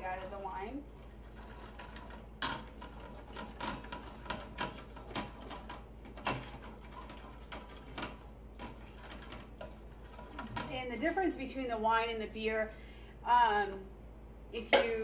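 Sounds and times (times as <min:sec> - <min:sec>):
utensil knocking and scraping pot: 0:00.0 - 0:10.8.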